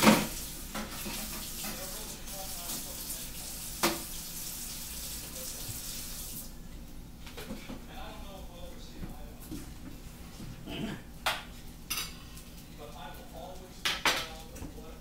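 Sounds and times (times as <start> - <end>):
tap running into sink: 3.8 - 4.1.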